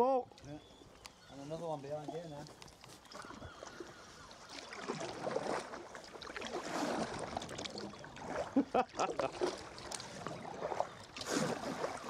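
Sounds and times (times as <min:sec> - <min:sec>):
water splashing around kayak: 0:00.3 - 0:12.0.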